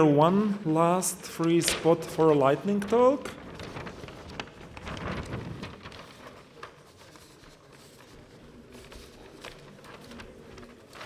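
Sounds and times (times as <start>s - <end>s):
faint rustling: 2.8s - 11.0s.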